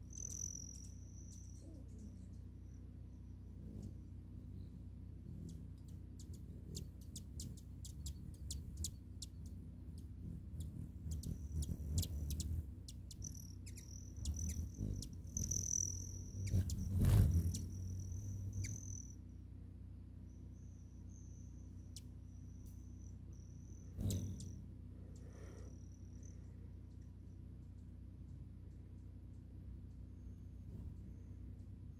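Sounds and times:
hummingbird wings whirring: 0.0 - 1.4, 3.5 - 19.2, 22.6 - 26.4, 29.9 - 31.8
insect trill: 0.0 - 3.6, 5.8 - 19.3, 20.2 - 27.4
hummingbird chip notes: 0.0 - 19.3, 20.2 - 31.9.

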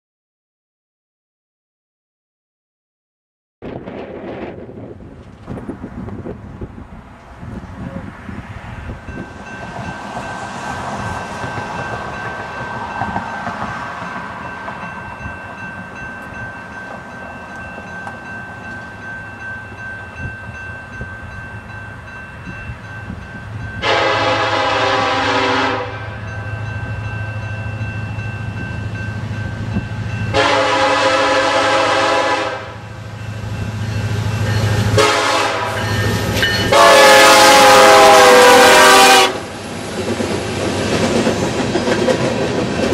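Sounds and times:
wind noise: 3.6 - 24.0, 26.6 - 30.4
locomotive horn blasts: 23.8 - 26.2, 30.3 - 32.8, 34.7 - 39.5.

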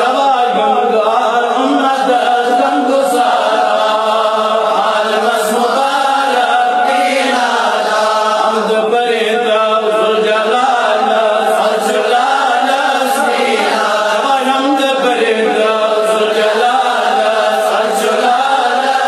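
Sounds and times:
man chanting melodically: 0.0 - 19.0.

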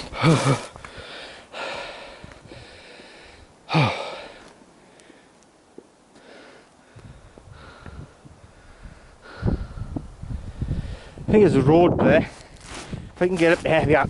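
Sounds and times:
man breathing hard: 0.0 - 5.4, 6.1 - 11.3
man grunting exhale: 3.7 - 4.4.

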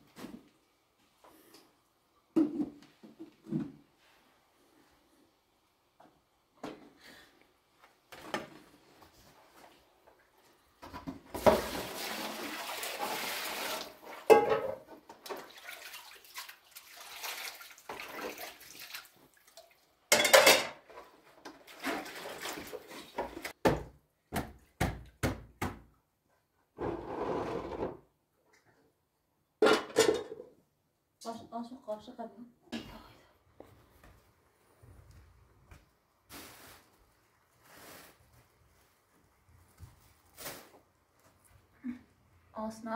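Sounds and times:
water splashing in plastic basin: 11.3 - 14.4, 15.0 - 19.8, 21.5 - 23.6
pots and utensils clattering: 14.2 - 15.5, 20.1 - 23.6, 29.6 - 30.6.

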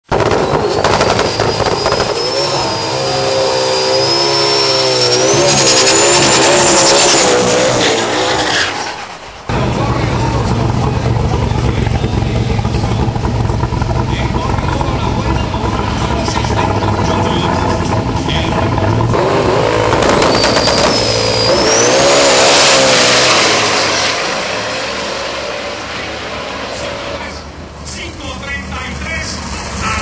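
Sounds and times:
car engine revving: 0.0 - 30.0
tyre screech: 0.4 - 9.5, 11.3 - 27.5
thin high whistle: 1.2 - 6.3, 20.2 - 22.1.

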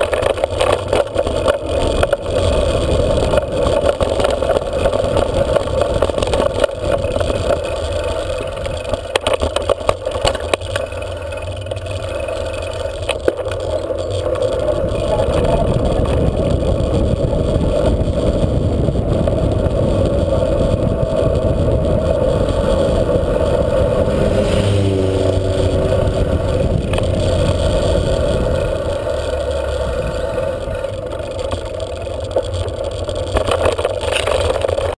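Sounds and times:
bicycle tyres rolling on road: 0.0 - 35.0
bike rattling over gravel: 0.0 - 35.0
wind on microphone: 11.3 - 35.0.

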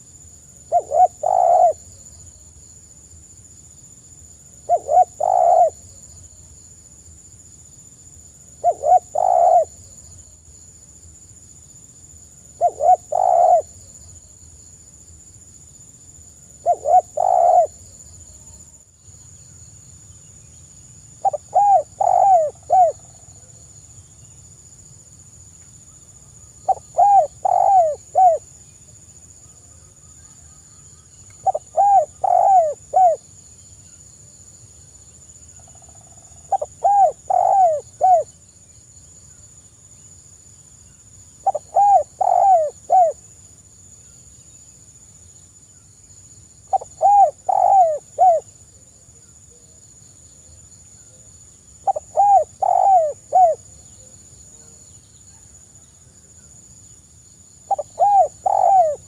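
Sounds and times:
dove cooing: 0.7 - 1.9, 4.7 - 5.8, 8.6 - 9.8, 12.6 - 13.8, 16.6 - 17.8, 21.2 - 23.1, 26.6 - 28.4, 31.4 - 33.2, 36.5 - 38.3, 41.4 - 43.2, 46.7 - 48.5, 51.8 - 53.6, 57.7 - 59.0.

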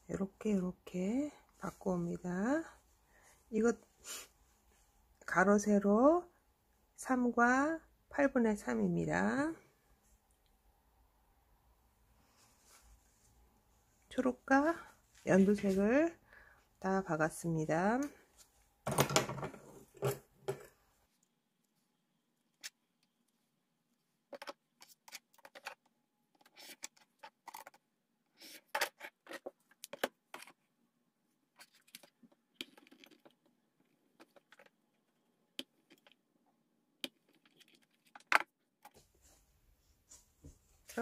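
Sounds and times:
fabric rustling: 12.2 - 14.0.

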